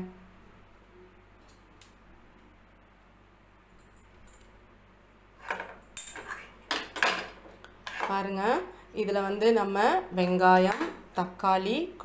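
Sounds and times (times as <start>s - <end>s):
spoon scraping metal bowl: 5.4s - 6.6s, 7.8s - 8.3s.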